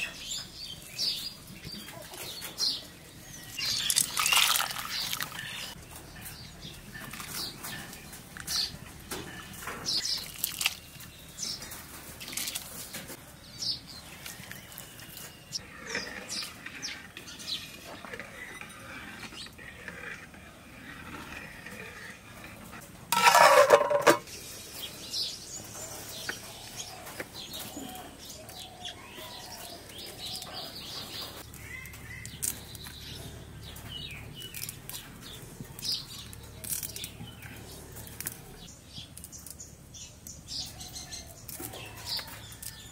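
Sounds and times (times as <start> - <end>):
small birds chirping: 0.0 - 22.8, 24.3 - 42.9
metal pot and bowl clinks: 23.2 - 24.3.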